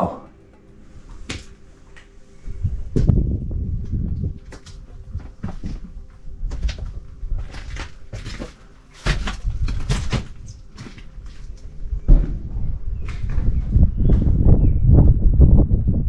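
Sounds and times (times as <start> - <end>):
low rumble: 0.0 - 16.0
footsteps crunching on broken glass: 6.6 - 11.6.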